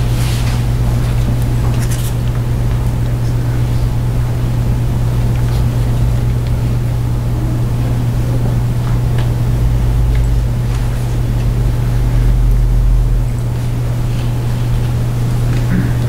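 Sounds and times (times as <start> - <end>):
steady low hum: 0.0 - 16.0
deep rumble: 5.7 - 13.8.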